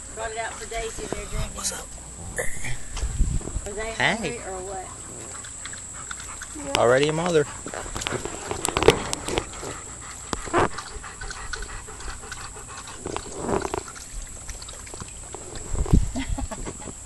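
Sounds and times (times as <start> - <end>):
dog panting: 0.2 - 1.8, 4.3 - 14.2
low thump: 2.4 - 3.7.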